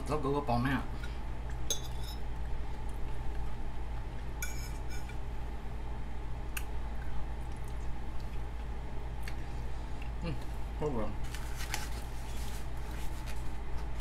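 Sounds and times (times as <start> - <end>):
steady low hum: 0.0 - 14.0
utensils clinking on plate: 1.7 - 2.2.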